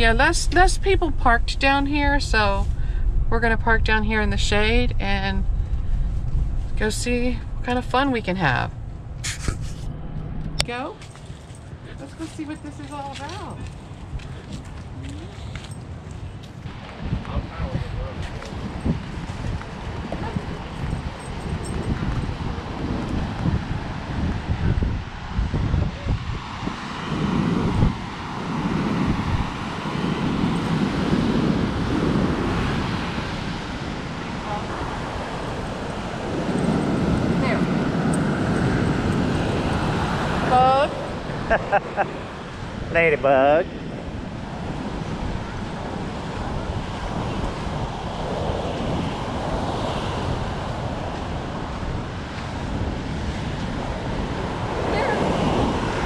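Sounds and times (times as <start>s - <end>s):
wind buffeting microphone: 0.0s - 56.0s
surf breaking on beach: 22.0s - 56.0s.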